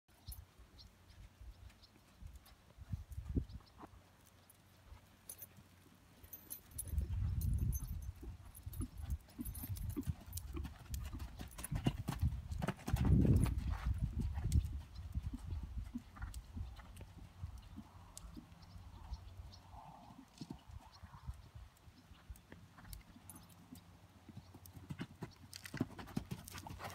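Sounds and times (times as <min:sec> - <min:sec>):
horse hoofbeats cantering on sand: 0:04.9 - 0:19.2, 0:21.9 - 0:26.9.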